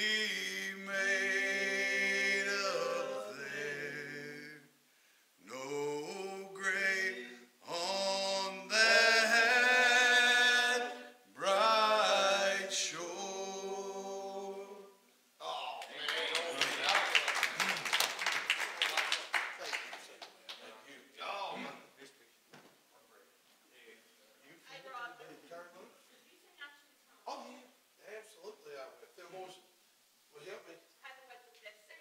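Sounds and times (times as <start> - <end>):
unaccompanied hymn singing: 0.0 - 4.8, 5.4 - 15.0.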